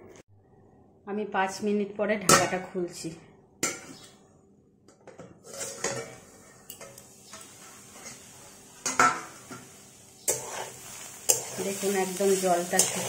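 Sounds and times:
metal scraping and clinking: 5.4s - 12.0s.

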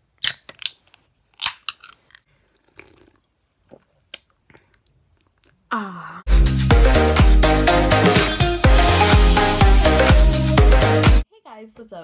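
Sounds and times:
soft gulps: 2.3s - 6.2s.

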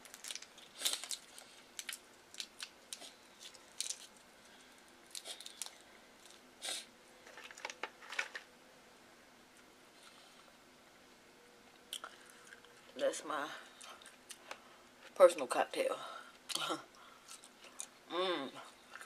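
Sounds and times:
shrimp shell peeling crackles: 0.0s - 4.2s, 5.1s - 6.4s.

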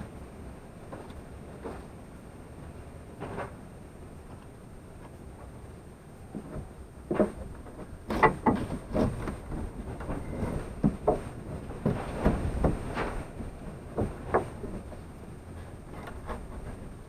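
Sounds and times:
scrapes and knocks in dirt: 6.4s - 17.0s.

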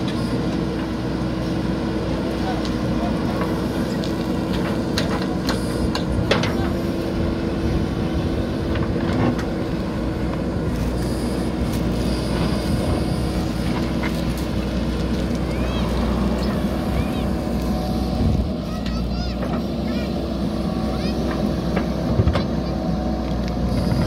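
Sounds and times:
diesel engine running: 0.0s - 24.0s.

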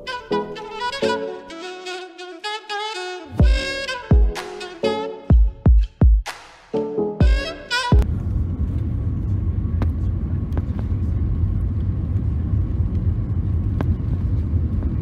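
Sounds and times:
airliner engines and airflow rumble: 8.0s - 15.0s.

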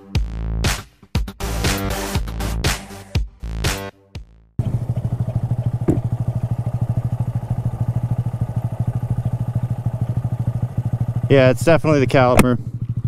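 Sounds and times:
motorcycle engine running: 4.6s - 13.0s.

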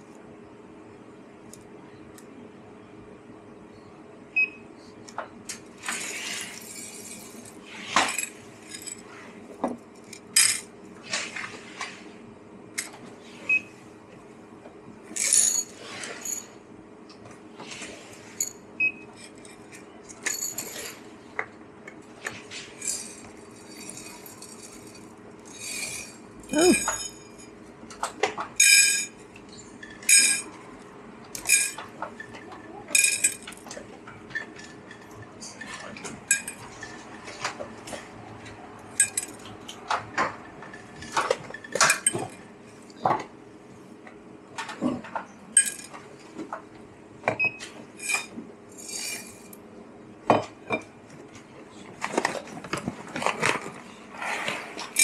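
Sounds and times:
steady low hum: 0.0s - 55.0s
cups and utensils clinking: 22.2s - 27.6s, 28.2s - 30.5s, 31.4s - 33.6s, 34.3s - 37.5s, 39.0s - 39.5s, 44.8s - 46.0s.

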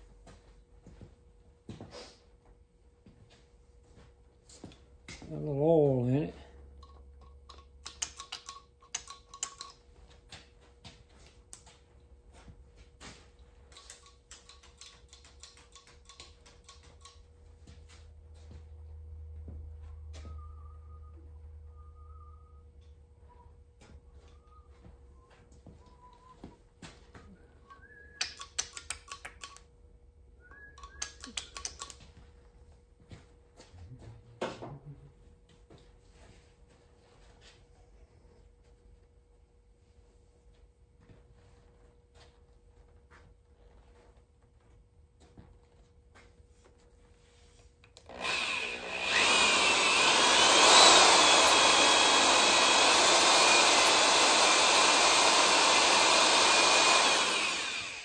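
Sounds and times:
quick metallic clicking: 28.2s - 29.6s
electric drill whining: 48.0s - 58.0s
valve seat cutter cutting metal: 48.1s - 58.0s.

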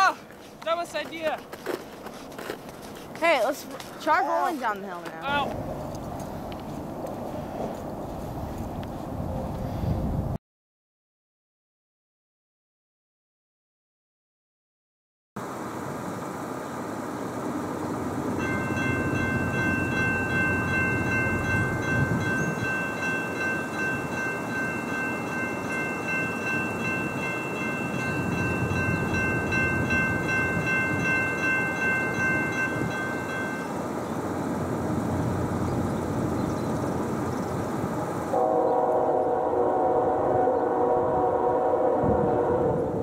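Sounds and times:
train rumble: 0.0s - 10.4s, 15.4s - 43.0s
locomotive air horn chord: 38.3s - 43.0s.

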